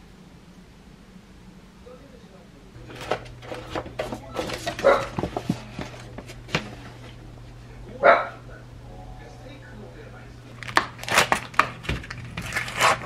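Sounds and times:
paper and cardboard rustling: 2.8 - 7.2, 10.6 - 13.0.

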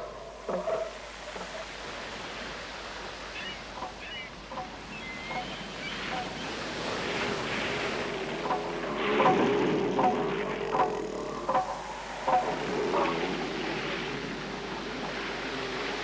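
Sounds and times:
faint high calls: 0.0 - 16.0
surf: 0.0 - 16.0
wind: 0.0 - 16.0
elephant seal threat call: 3.3 - 16.0.

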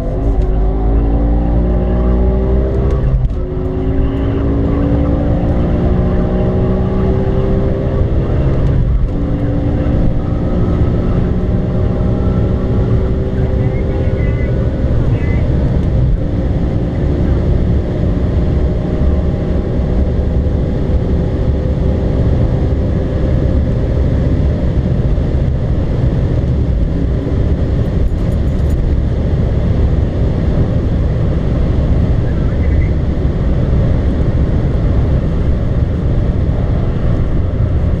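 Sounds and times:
high-revving engine drone: 0.0 - 38.0
wind and road noise: 0.0 - 38.0.

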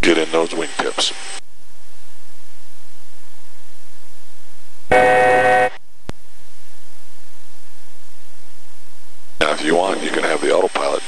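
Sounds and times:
jet cabin noise: 0.0 - 11.0
buzzing cockpit alert tone: 4.9 - 5.8.

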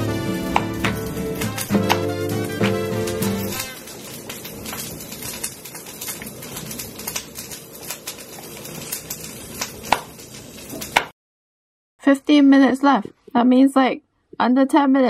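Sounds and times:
knife chopping on plastic board: 0.5 - 1.0, 1.8 - 2.8.

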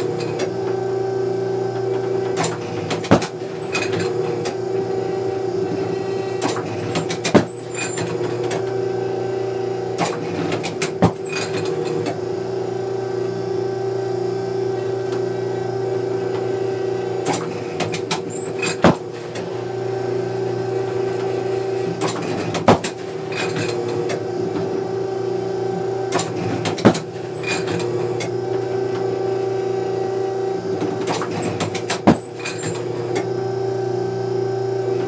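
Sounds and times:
trap machine clicking and clanking: 1.9 - 4.6, 10.0 - 12.2, 17.2 - 19.5, 21.1 - 24.3, 26.1 - 28.4, 30.8 - 33.3.

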